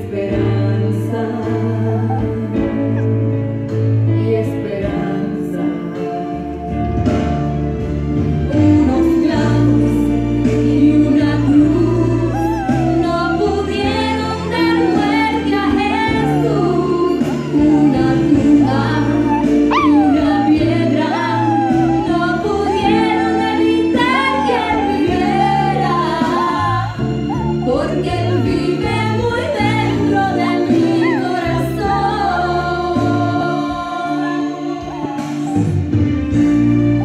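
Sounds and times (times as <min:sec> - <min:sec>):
song with singer and band: 0:00.0 - 0:37.0
puppy howling: 0:01.6 - 0:03.3, 0:11.1 - 0:36.4
puppy yelping: 0:01.9 - 0:03.3, 0:11.2 - 0:32.4, 0:33.9 - 0:36.0.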